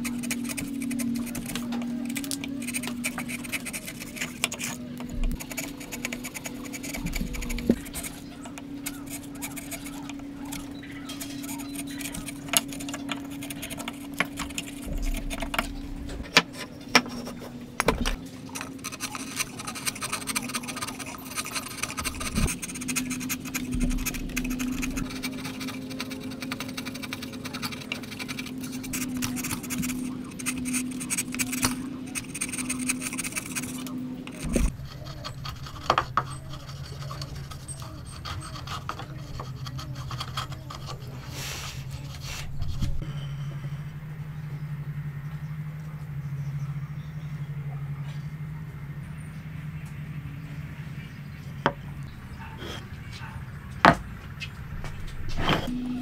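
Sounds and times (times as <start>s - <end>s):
chisel scraping wood: 0.0s - 43.0s, 55.3s - 55.7s
steady low hum: 0.0s - 56.0s.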